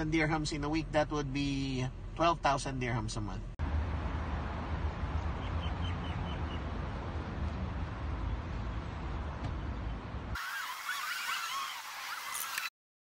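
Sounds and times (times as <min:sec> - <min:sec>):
low rumble and hiss: 0:00.0 - 0:10.4.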